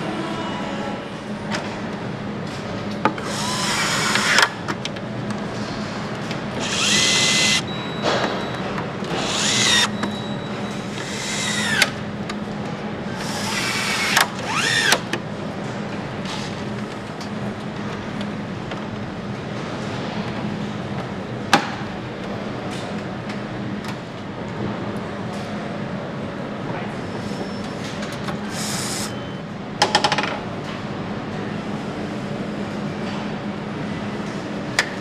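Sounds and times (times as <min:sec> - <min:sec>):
low factory hum: 0:00.0 - 0:35.0
power screwdriver whirring: 0:03.2 - 0:04.5, 0:06.6 - 0:07.6, 0:09.2 - 0:09.9, 0:11.0 - 0:11.9, 0:13.2 - 0:15.0.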